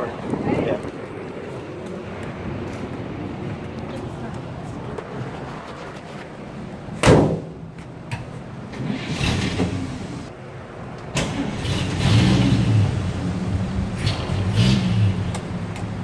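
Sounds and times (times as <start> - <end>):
truck door slamming: 7.0 - 7.6
truck engine starting and revving: 8.6 - 10.3, 11.1 - 16.0.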